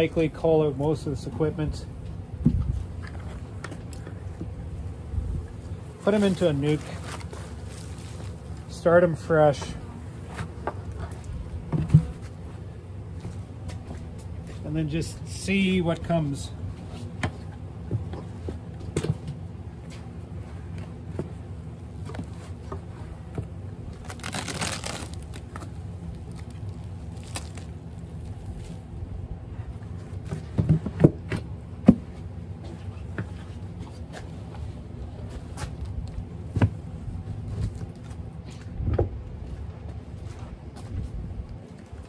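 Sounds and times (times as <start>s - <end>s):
steady low hum: 0.0s - 42.0s
wooden hive frames scraping: 0.9s - 34.6s.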